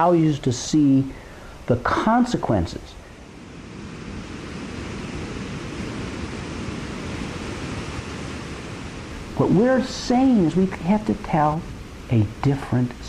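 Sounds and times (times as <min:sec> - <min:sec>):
wind: 0:00.0 - 0:13.0
surf rushing on rocks: 0:03.3 - 0:12.8.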